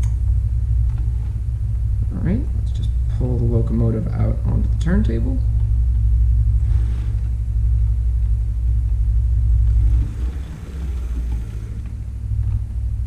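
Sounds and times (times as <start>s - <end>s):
low electrical hum: 0.0s - 13.0s
model locomotive rolling: 9.7s - 12.3s.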